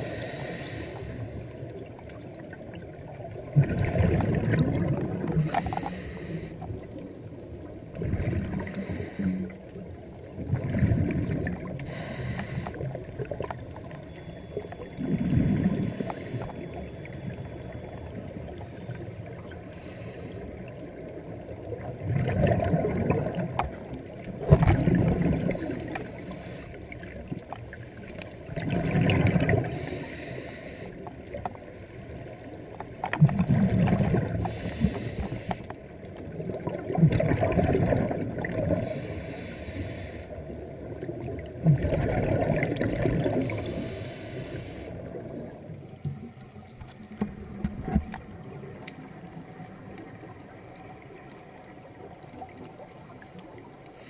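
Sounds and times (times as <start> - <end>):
steady underwater hiss: 0.0 - 2.0, 5.0 - 13.4, 14.5 - 21.7, 24.9 - 27.2, 28.8 - 32.8, 33.7 - 37.3, 38.1 - 41.1, 42.8 - 46.1, 48.3 - 54.0
underwater exhaled bubbles: 3.5 - 54.0.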